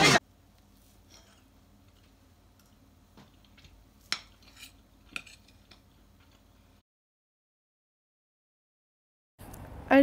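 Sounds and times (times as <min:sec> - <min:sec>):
fork scraping ceramic plate: 0:01.1 - 0:01.5, 0:04.1 - 0:05.8.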